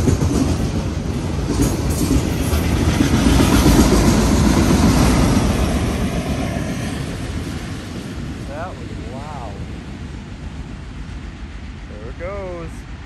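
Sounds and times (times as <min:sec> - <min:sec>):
train wheels rumbling on track: 0:00.0 - 0:13.0.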